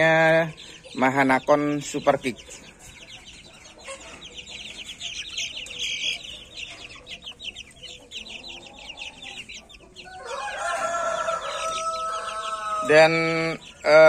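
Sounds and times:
chicks peeping: 0.0s - 14.0s
rooster crowing: 10.0s - 13.1s.

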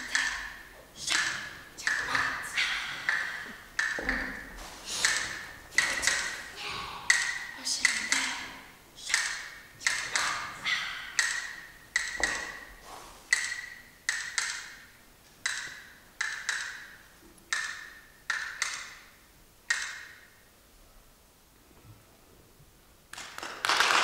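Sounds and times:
sharp wooden taps: 1.1s - 6.5s, 7.1s - 8.4s, 9.1s - 12.7s, 13.3s - 14.8s, 15.4s - 16.9s, 17.5s - 19.0s, 19.7s - 20.2s.

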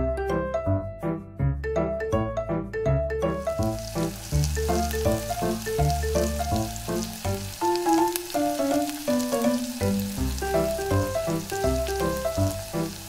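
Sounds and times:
fine sizzling crackle: 3.4s - 13.0s.

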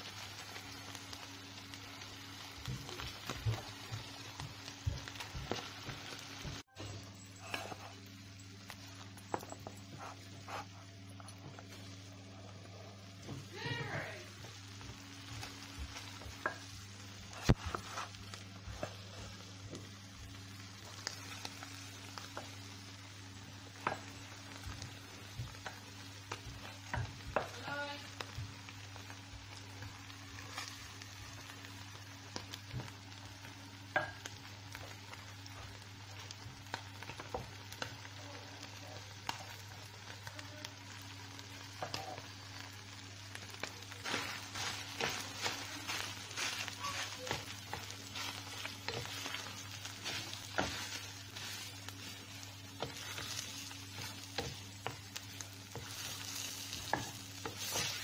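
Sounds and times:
light sizzle: 0.0s - 58.0s
wooden spoon scraping and knocking pan: 15.4s - 19.8s, 44.0s - 58.0s.

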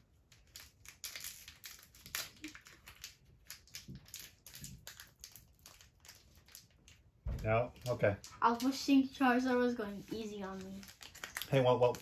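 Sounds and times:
foil wrapper crinkling: 0.2s - 7.2s, 9.6s - 12.0s.

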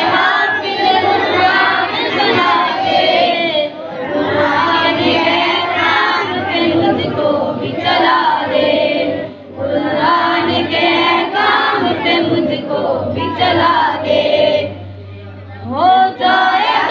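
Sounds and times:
boy singing a prayer chant: 0.0s - 16.9s
voices singing in chorus: 0.0s - 16.9s.

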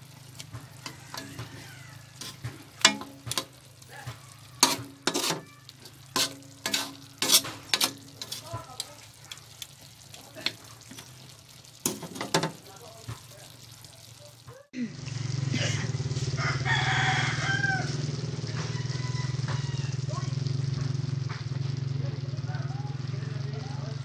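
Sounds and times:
tongs scraping metal wok: 0.0s - 14.2s
sauce sizzling: 0.0s - 24.0s.

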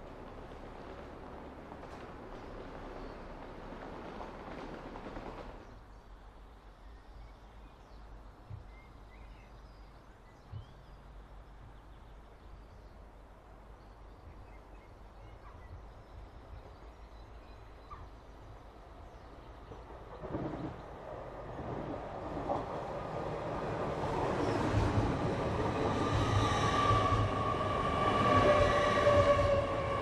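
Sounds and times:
faint bird chirps: 13.8s - 18.4s.

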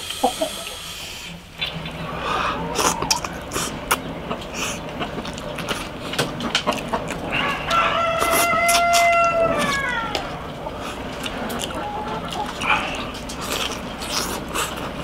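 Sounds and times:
eating sounds: 0.0s - 15.0s
rooster crowing: 2.0s - 3.5s, 7.3s - 10.6s.

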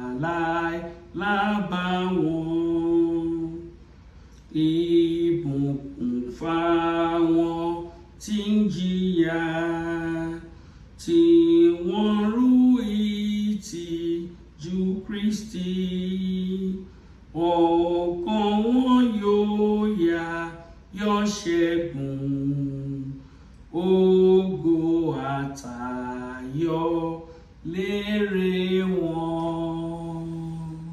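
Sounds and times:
woman singing a hymn: 0.0s - 3.8s, 17.4s - 30.9s.

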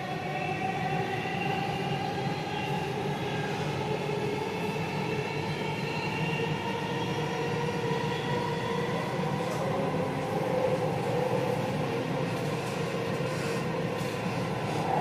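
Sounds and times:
train wheels rumbling on track: 7.1s - 15.0s.

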